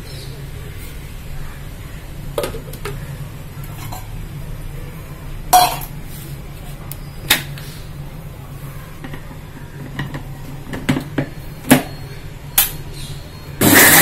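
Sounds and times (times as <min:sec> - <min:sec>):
mixer grinder motor whirring: 0:13.6 - 0:14.0.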